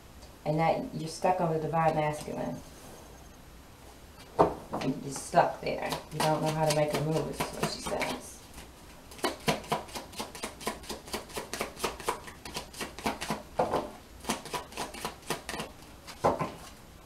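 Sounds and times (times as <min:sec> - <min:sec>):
cards being shuffled: 0:05.8 - 0:16.8.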